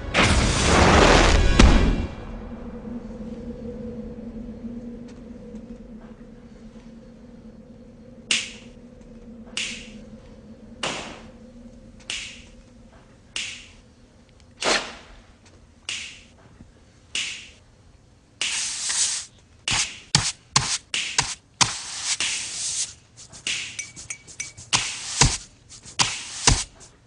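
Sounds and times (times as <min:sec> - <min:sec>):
music hiss and hits: 0:00.0 - 0:02.6, 0:18.4 - 0:27.0
faint steady hum: 0:02.2 - 0:27.0
fingers snapping in unison: 0:08.3 - 0:08.7, 0:09.5 - 0:10.0, 0:12.0 - 0:12.6, 0:13.4 - 0:13.8, 0:15.8 - 0:16.3, 0:17.1 - 0:17.6.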